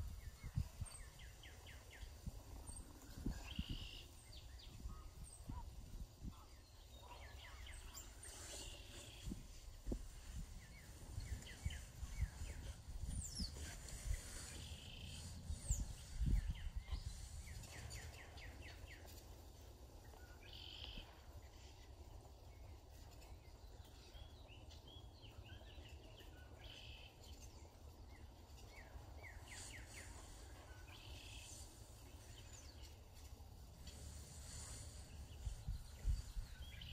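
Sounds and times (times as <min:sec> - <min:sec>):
wind buffeting microphone: 0:00.0 - 0:06.7, 0:07.5 - 0:19.2, 0:33.6 - 0:36.9
birds singing and chirping: 0:00.0 - 0:36.9.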